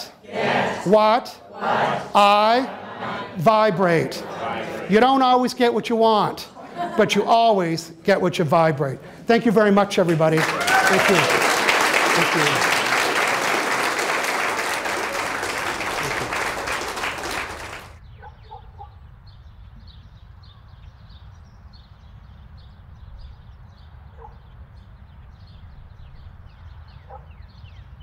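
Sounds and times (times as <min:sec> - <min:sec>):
audience applauding: 0:10.0 - 0:18.0.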